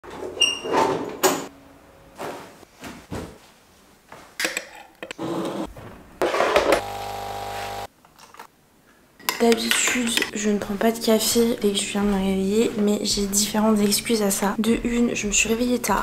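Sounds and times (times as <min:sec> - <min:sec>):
electric kettle humming: 0:06.6 - 0:07.9.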